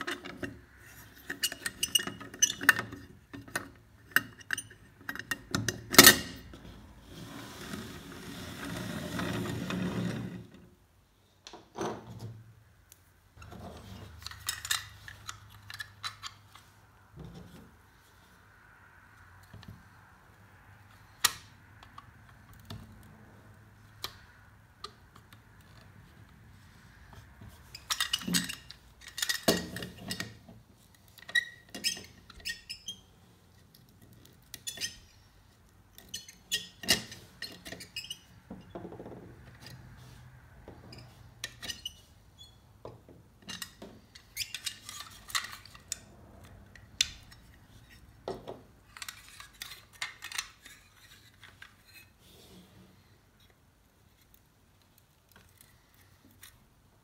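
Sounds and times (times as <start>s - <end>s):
screwdriver scraping metal toy: 43.5s - 48.2s, 48.9s - 52.2s.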